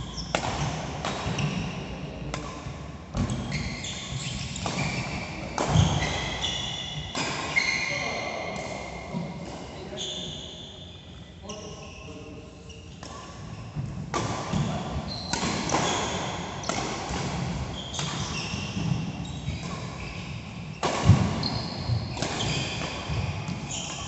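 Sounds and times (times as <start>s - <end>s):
shoes squeaking on court: 0.0s - 0.4s, 3.2s - 8.1s, 14.6s - 16.8s, 17.7s - 24.0s.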